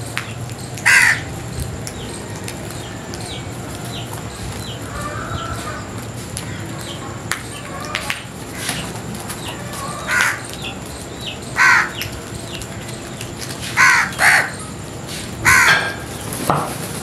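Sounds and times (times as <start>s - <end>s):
crows cawing: 0.8s - 1.3s, 4.7s - 6.7s, 9.5s - 10.8s, 11.5s - 12.2s, 13.7s - 14.7s, 15.4s - 16.2s.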